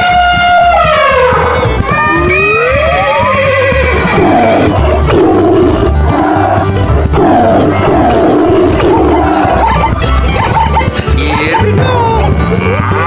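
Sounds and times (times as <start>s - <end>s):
background music with low beat: 0.0s - 13.0s
rough animal roars: 3.0s - 9.7s.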